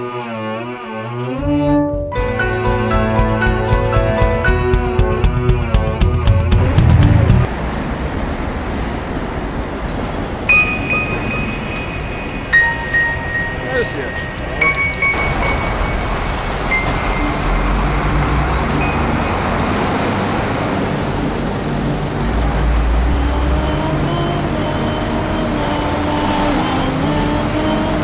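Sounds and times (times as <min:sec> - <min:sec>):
passing cars rushing: 0:06.2 - 0:28.0.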